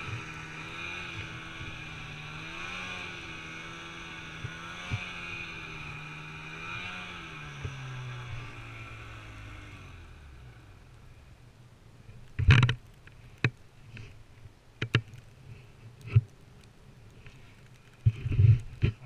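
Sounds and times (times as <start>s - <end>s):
snowmobile engine revving: 0.0s - 10.8s.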